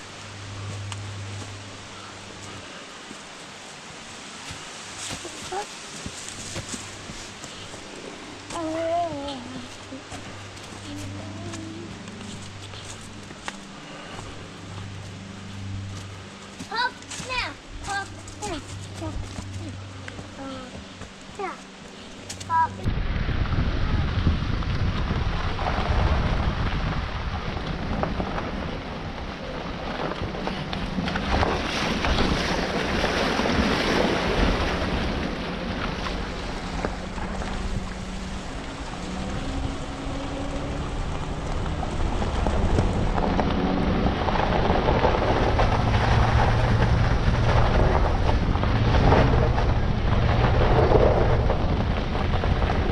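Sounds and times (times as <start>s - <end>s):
tyres on gravel: 0.0s - 22.9s, 24.8s - 52.9s
vehicle engine running: 0.0s - 52.9s
wind buffeting microphone: 22.2s - 52.9s.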